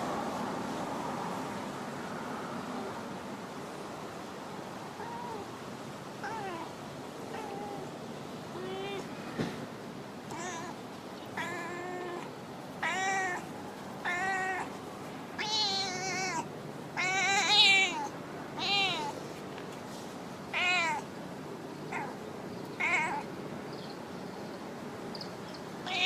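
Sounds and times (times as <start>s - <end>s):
cat meowing: 5.0s - 5.5s, 6.2s - 6.7s, 7.3s - 7.9s, 8.5s - 9.1s, 10.3s - 14.8s, 15.4s - 19.2s, 20.5s - 21.1s, 21.9s - 22.2s, 22.8s - 23.3s.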